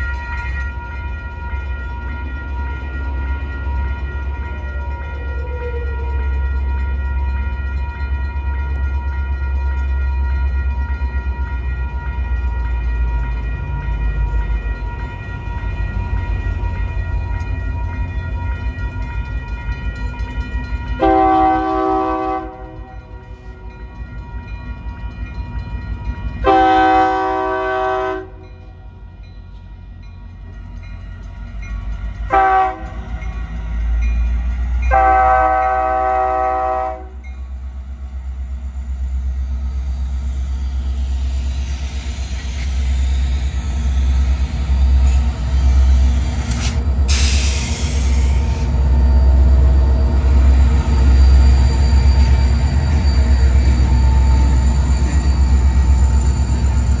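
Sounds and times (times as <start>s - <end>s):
crossing warning bell ringing: 0.0s - 57.0s
low rumble of train: 0.0s - 57.0s
locomotive air horn blasts: 21.0s - 23.6s, 26.4s - 28.4s, 32.3s - 33.1s, 34.9s - 37.2s.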